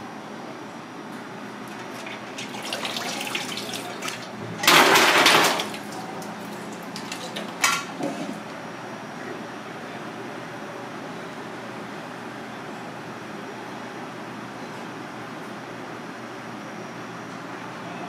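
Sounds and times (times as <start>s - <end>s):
water gushing into sink: 1.7s - 7.6s
water splashing: 1.9s - 6.1s.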